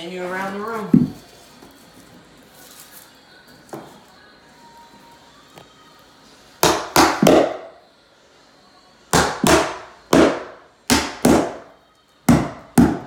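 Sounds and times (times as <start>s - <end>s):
hammer striking nails into wood: 6.6s - 7.6s, 9.1s - 11.6s, 12.3s - 13.0s.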